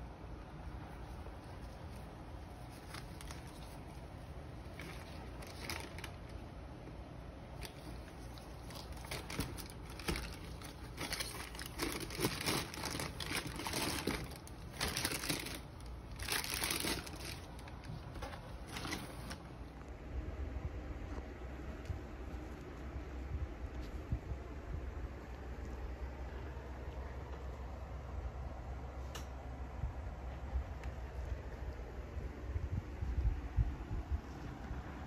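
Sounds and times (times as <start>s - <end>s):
tissue paper crinkling: 0.9s - 6.5s, 7.5s - 19.6s.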